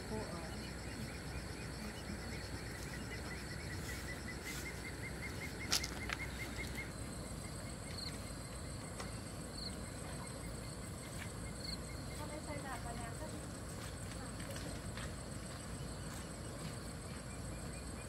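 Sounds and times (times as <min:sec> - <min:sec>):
scattered higher chirps: 0:00.0 - 0:08.6
faint steady high whine: 0:00.0 - 0:18.0.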